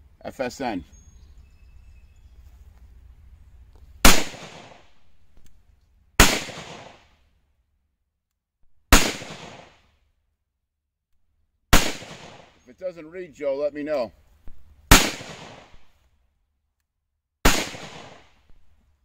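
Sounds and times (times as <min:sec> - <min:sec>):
pistol shots: 0:04.0 - 0:05.1, 0:06.2 - 0:07.1, 0:08.9 - 0:09.8, 0:11.7 - 0:12.6, 0:14.9 - 0:15.9, 0:17.4 - 0:18.5.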